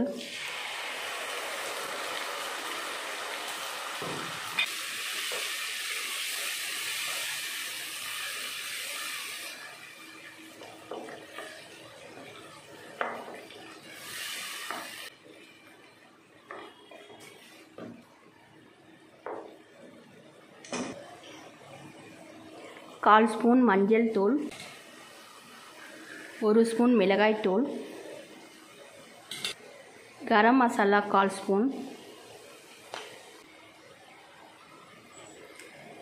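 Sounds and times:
puree sizzling in hot oil: 0:00.2 - 0:15.7.

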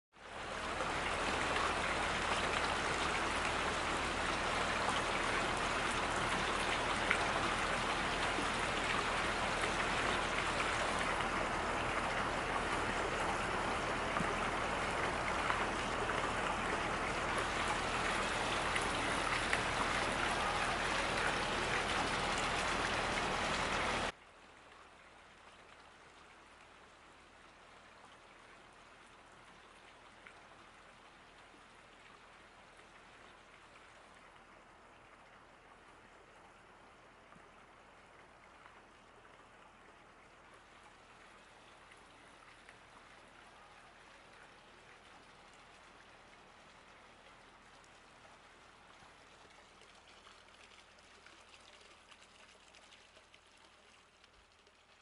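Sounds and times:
heavy rain falling: 0:00.4 - 0:24.1.

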